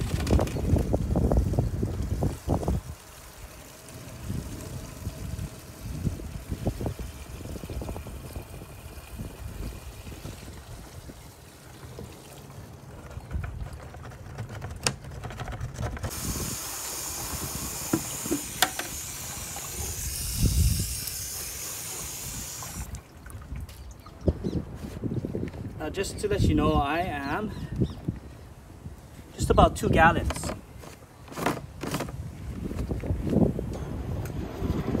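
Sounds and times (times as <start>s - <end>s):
liquid pouring into a tank: 0.8s - 12.8s, 16.1s - 23.6s
sprayer nozzle hissing: 16.1s - 22.9s.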